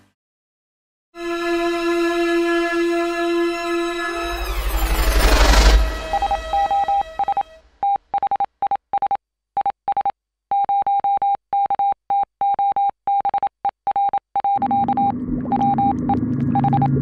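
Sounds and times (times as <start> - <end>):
electronic morse beeps: 3.9 - 8.4, 14.0 - 17.0.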